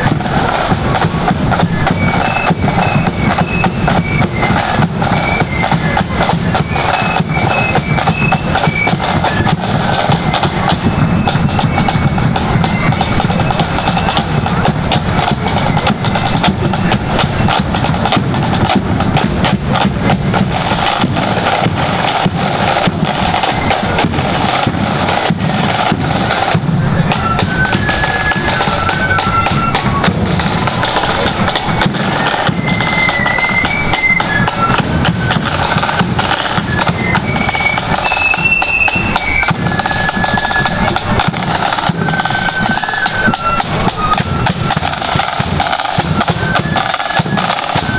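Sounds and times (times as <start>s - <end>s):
bass drum beating: 0.0s - 38.1s, 38.8s - 46.6s
flute melody: 0.0s - 47.9s
snare drums rattling: 0.0s - 47.9s.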